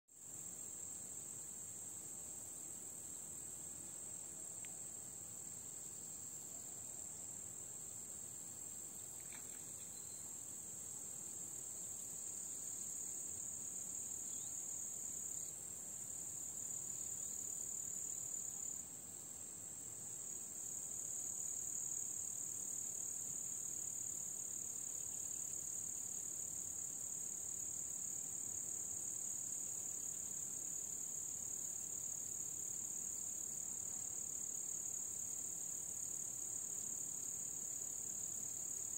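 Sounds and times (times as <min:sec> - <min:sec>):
insects buzzing trill: 0:05.4 - 0:19.2.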